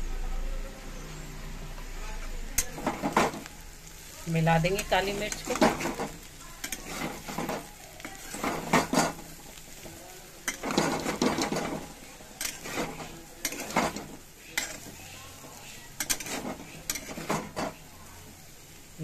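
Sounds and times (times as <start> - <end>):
metal spatula scraping metal pan: 4.4 - 17.9.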